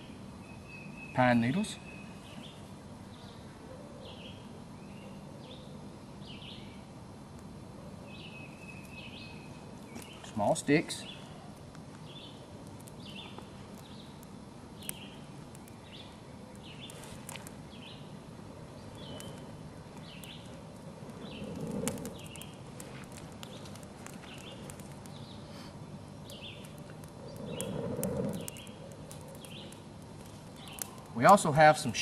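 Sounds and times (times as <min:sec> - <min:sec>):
bird chirping: 0:00.0 - 0:06.8, 0:08.0 - 0:11.4, 0:13.0 - 0:14.2, 0:14.8 - 0:17.1, 0:17.7 - 0:22.6, 0:26.2 - 0:29.8, 0:30.5 - 0:31.3
small fire crackling: 0:00.0 - 0:32.0.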